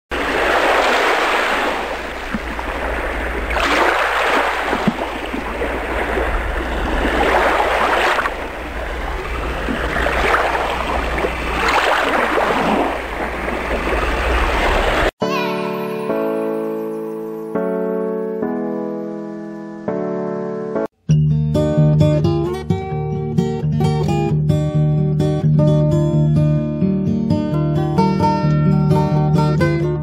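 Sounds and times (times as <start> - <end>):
lake waves washing in: 0.1 - 15.2.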